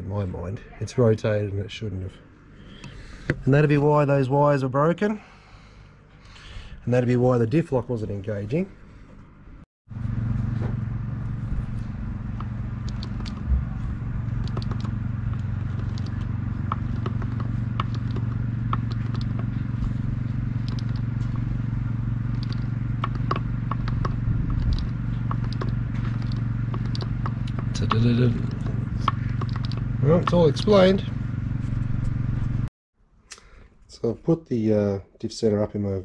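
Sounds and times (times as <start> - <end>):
machine humming: 9.9 - 32.7.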